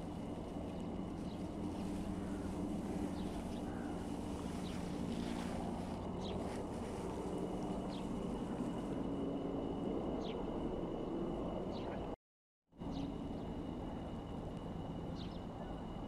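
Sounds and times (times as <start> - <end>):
low machine drone: 0.0 - 12.2.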